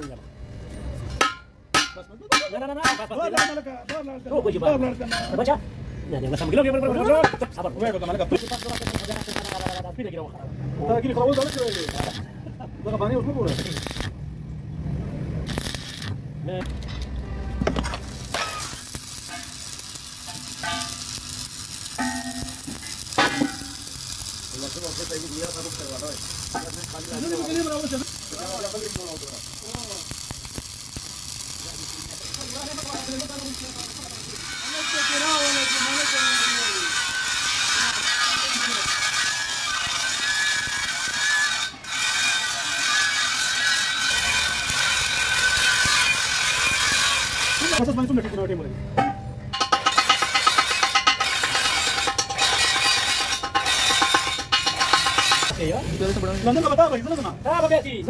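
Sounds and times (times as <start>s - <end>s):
welding arc crackling: 6.7s - 10.1s, 10.8s - 14.4s, 15.4s - 48.0s, 49.5s - 57.8s.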